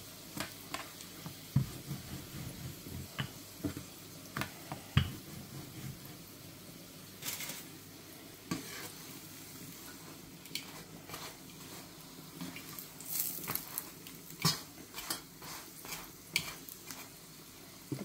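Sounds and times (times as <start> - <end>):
faint sizzle of frying bread: 0.0 - 18.0
spatula knocking on frying pan: 1.5 - 3.9, 5.0 - 5.3.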